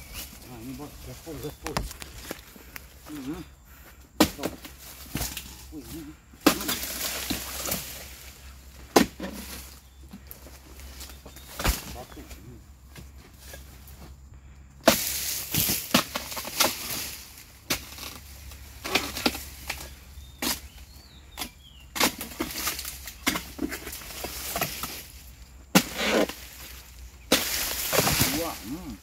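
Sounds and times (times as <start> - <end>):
palm fronds rustling: 0.0 - 29.0
sickle cracking through stalks: 1.3 - 3.3, 4.2 - 8.3, 14.8 - 20.7, 25.8 - 29.0.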